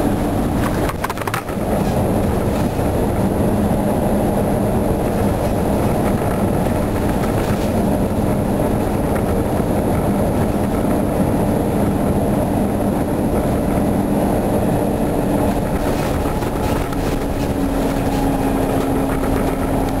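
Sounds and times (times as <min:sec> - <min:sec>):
bus diesel engine running: 0:00.0 - 0:20.0
road and body noise: 0:00.0 - 0:20.0
rattles and knocks: 0:00.5 - 0:03.4, 0:05.1 - 0:11.0, 0:15.4 - 0:20.0.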